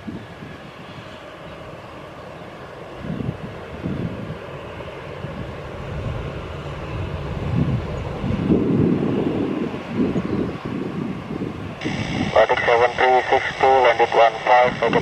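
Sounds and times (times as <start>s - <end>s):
distant jet engines humming: 0.0s - 15.0s
low rumbling: 11.8s - 15.0s.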